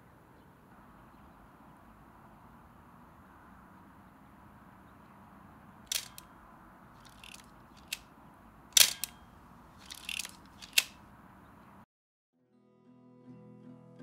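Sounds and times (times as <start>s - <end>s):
camera shutter clicking: 5.9s - 6.3s, 7.1s - 8.0s, 8.8s - 9.2s, 9.8s - 11.0s
soft mechanical clicks: 5.9s - 6.3s, 7.0s - 8.0s, 9.8s - 11.0s.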